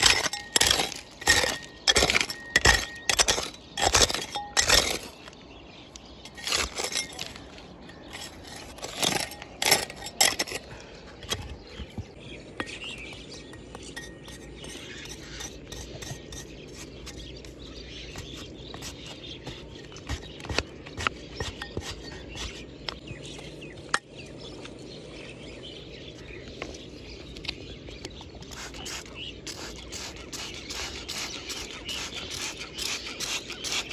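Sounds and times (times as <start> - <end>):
knife scraping into gravelly soil: 0.0 - 5.3, 6.2 - 11.7, 13.8 - 22.7, 28.5 - 33.9.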